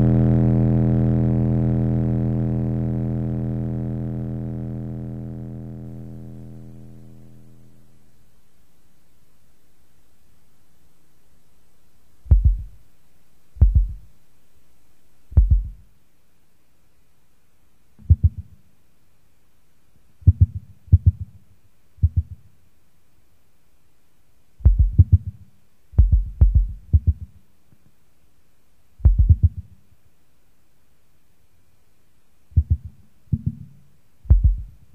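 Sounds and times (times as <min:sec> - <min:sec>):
faint low hum: 0:00.0 - 0:34.9
deep heavy thuds: 0:12.3 - 0:12.8, 0:13.6 - 0:14.0, 0:15.4 - 0:15.8, 0:24.6 - 0:25.2, 0:26.0 - 0:27.2, 0:29.0 - 0:29.6, 0:34.3 - 0:34.8.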